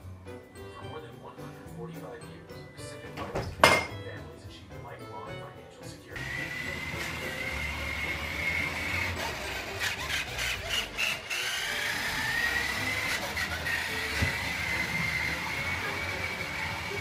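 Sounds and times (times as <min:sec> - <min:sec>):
plastic wheels rumbling on wood: 0:06.2 - 0:17.0
small electric motor whining: 0:06.2 - 0:17.0.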